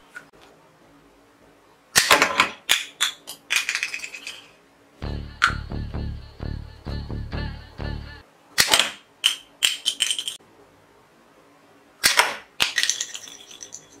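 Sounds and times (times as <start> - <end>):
plastic pieces rattling: 2.7 - 4.5, 9.2 - 10.4, 12.6 - 14.0
background music: 5.0 - 8.2
toy pistol snapping shots: 8.6 - 10.0, 12.0 - 12.9.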